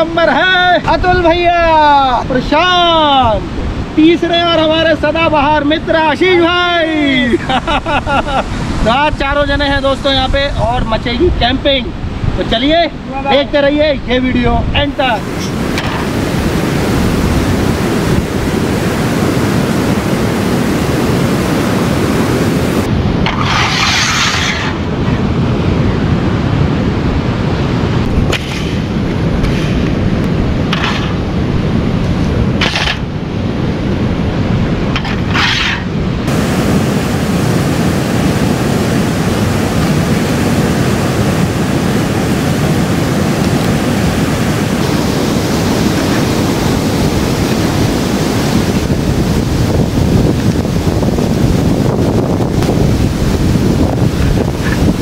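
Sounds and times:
fast-flowing river rushing: 14.9 - 23.8, 24.7 - 55.0.

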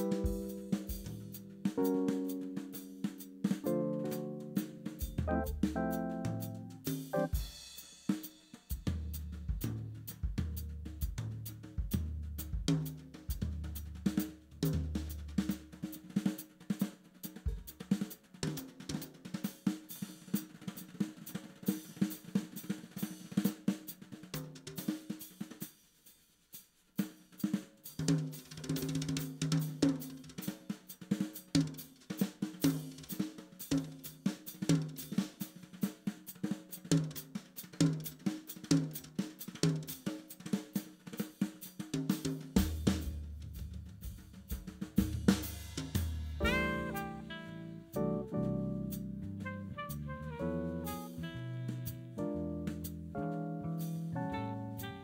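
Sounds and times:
instrumental band playing: 0.0 - 8.8, 44.1 - 55.0
busy drumming with cymbals: 0.0 - 53.1, 53.7 - 55.0.

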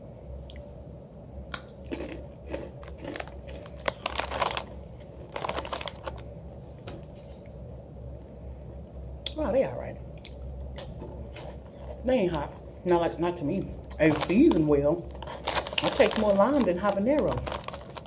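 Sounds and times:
tortilla chips crunching: 1.5 - 6.3, 10.3 - 12.7, 13.9 - 18.0.

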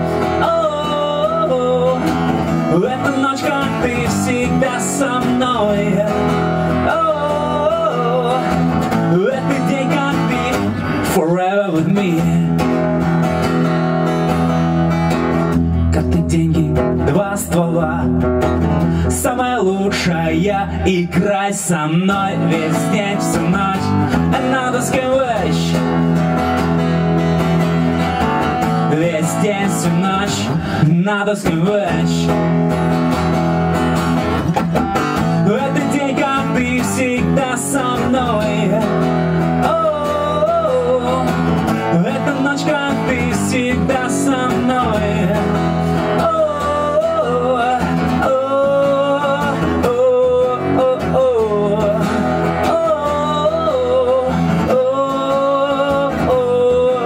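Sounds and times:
man singing: 0.0 - 14.5, 15.3 - 57.0
acoustic guitar strumming: 0.0 - 57.0.

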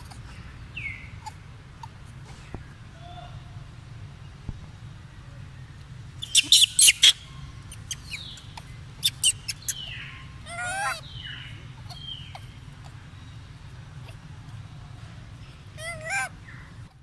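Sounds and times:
monkey squealing: 6.2 - 8.3, 9.0 - 11.0, 15.8 - 16.3.

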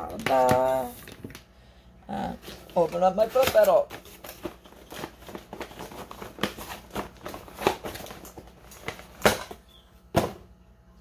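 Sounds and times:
packaging crinkling and rustling: 2.4 - 9.6.

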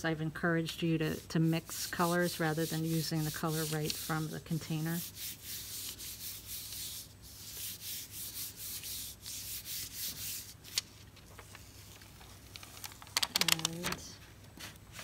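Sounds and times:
hands swishing on paper: 1.0 - 12.3
paper ticks: 12.5 - 14.0.

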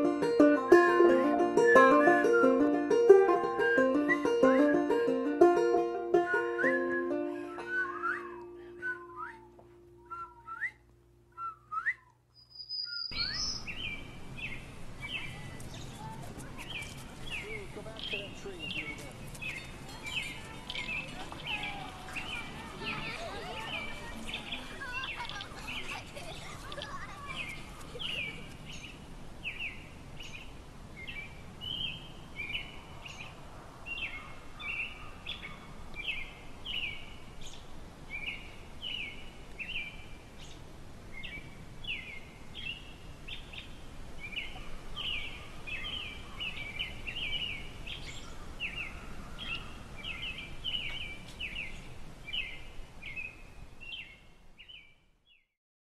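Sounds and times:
low background noise: 0.0 - 55.4
small birds chirping: 11.4 - 55.4.

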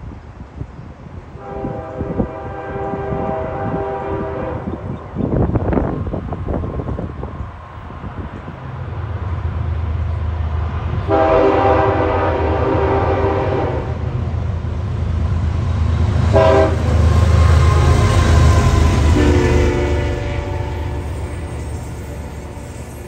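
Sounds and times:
diesel locomotive engines rumbling: 0.0 - 23.0
train air horn blasts: 1.4 - 4.9, 11.0 - 14.1, 16.2 - 22.6.

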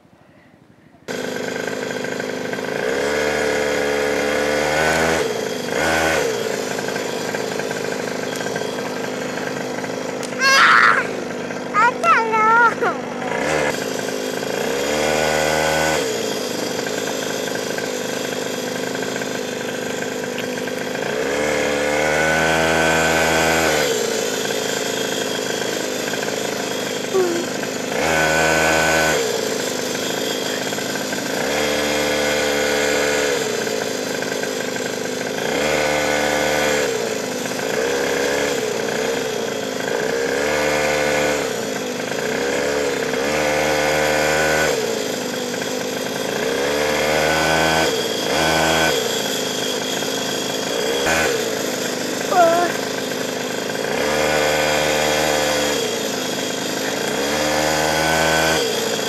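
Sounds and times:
small two-stroke engine revving: 1.1 - 59.0.

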